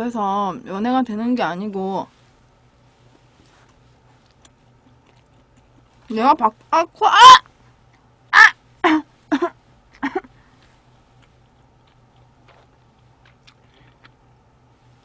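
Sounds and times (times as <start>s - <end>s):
faint chewing clicks: 3.6s - 6.1s, 10.6s - 14.4s
woman laughing: 8.4s - 10.3s.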